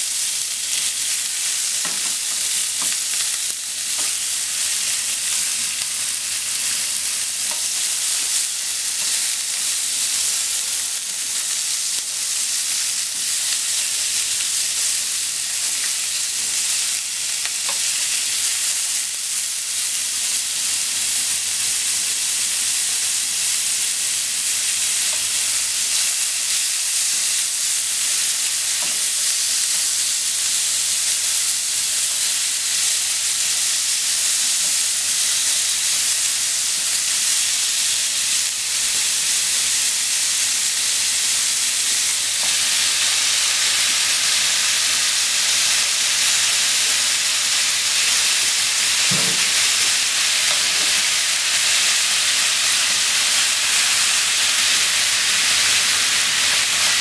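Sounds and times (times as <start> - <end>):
meat sizzling in frying pan: 0.0 - 57.0
chopsticks tapping pan: 1.8 - 4.2.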